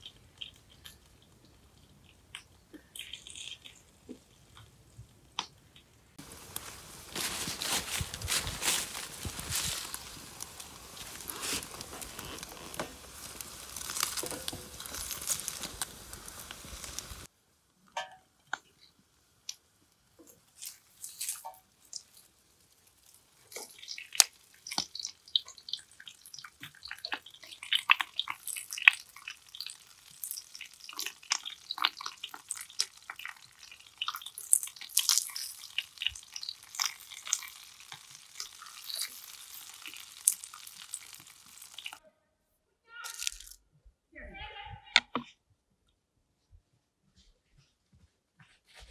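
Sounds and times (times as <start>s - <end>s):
food frying and crackling: 0.0s - 42.0s, 43.0s - 43.6s.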